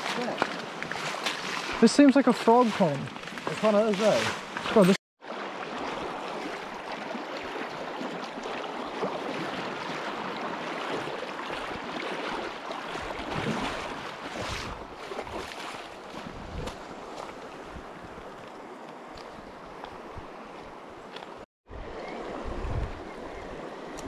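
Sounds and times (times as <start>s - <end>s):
river water over gravel: 0.0s - 24.0s
wind buffeting microphone: 16.1s - 18.4s, 21.7s - 24.0s.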